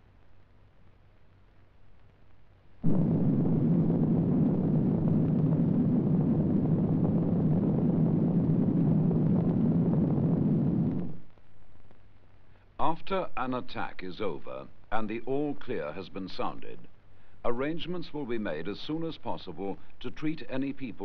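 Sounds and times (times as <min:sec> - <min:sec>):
deep loud explosion: 0:02.8 - 0:11.3.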